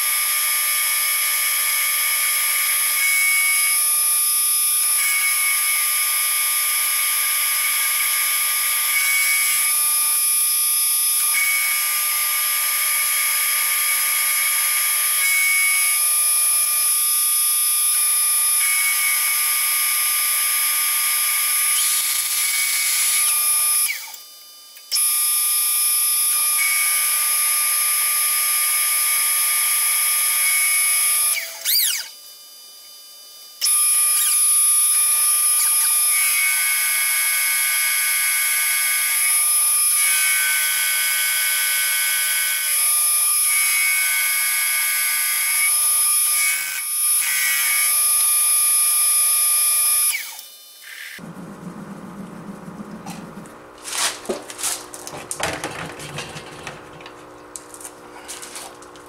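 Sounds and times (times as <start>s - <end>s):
milling machine cutting steel: 52.4s - 59.0s.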